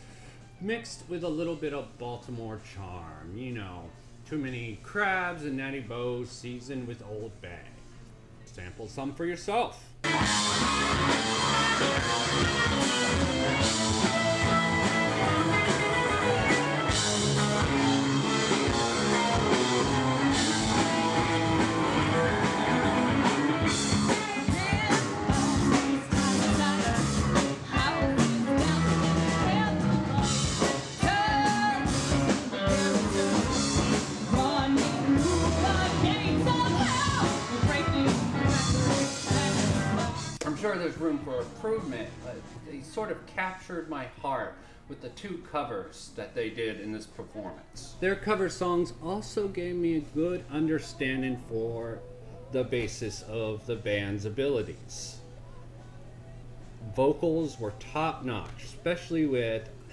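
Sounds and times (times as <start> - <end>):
rock band playing: 10.0 - 40.4
woman singing lead: 10.2 - 40.4.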